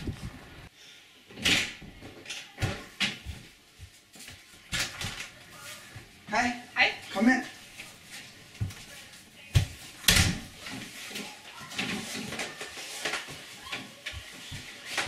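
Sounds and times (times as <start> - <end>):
footsteps: 2.6 - 6.3, 7.0 - 15.0.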